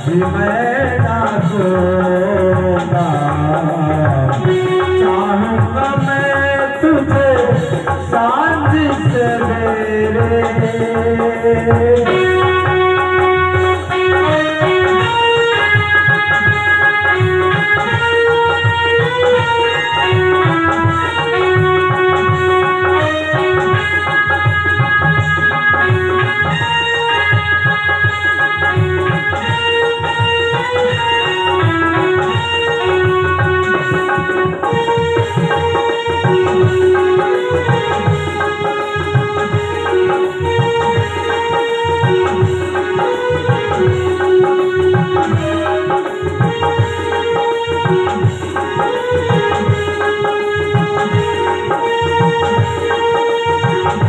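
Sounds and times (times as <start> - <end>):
drum rhythm: 0.0 - 54.0
keyboard and banjo melody: 0.0 - 54.0.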